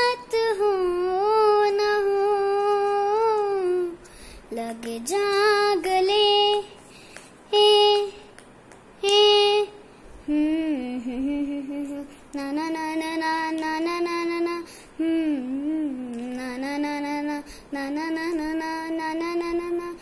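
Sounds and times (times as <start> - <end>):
girl singing unaccompanied: 0.0 - 20.0
singer breathing: 4.0 - 4.5, 6.7 - 7.4, 14.6 - 15.0, 17.4 - 17.8.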